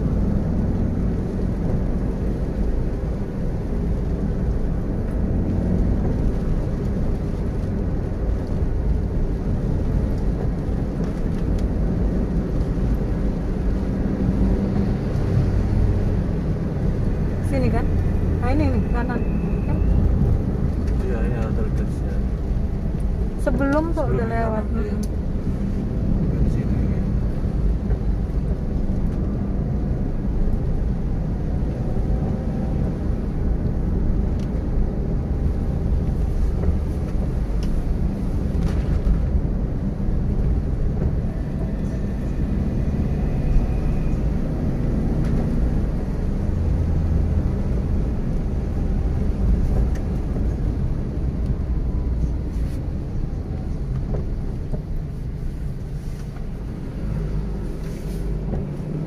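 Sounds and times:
car engine and tyres rumbling: 0:00.0 - 0:59.0.

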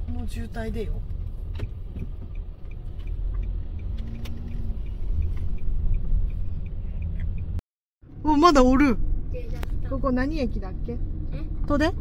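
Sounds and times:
car engine and road noise: 0:00.0 - 0:12.0
faint regular ticking: 0:01.6 - 0:07.6.

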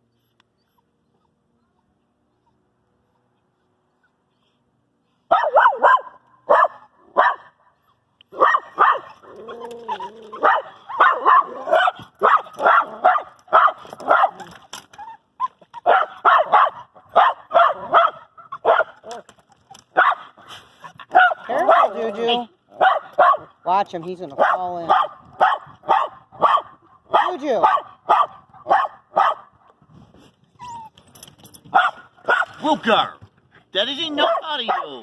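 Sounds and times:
dog barking and yipping: 0:05.3 - 0:07.5, 0:08.3 - 0:22.2, 0:22.8 - 0:23.6, 0:24.4 - 0:29.5, 0:31.7 - 0:32.6, 0:34.2 - 0:35.0
dog whining: 0:09.0 - 0:13.0, 0:30.5 - 0:31.3.

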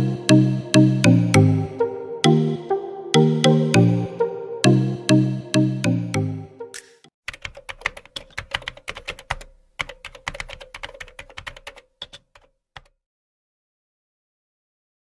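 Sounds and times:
music notes: 0:00.0 - 0:07.1
rapid irregular clicking: 0:06.8 - 0:12.9.

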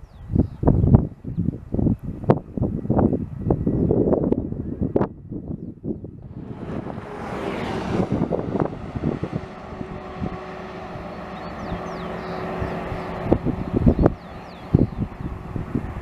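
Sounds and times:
bus driving past: 0:06.2 - 0:16.0.

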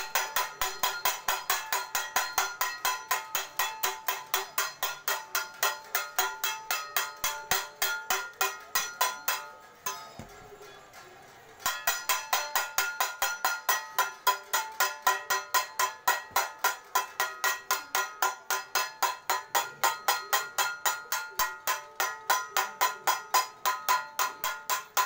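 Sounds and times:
metal plate clanging: 0:00.0 - 0:25.0.

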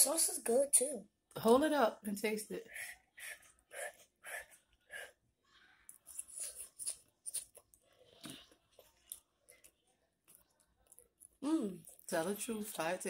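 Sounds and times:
child chewing and lip smacking: 0:03.1 - 0:12.1.

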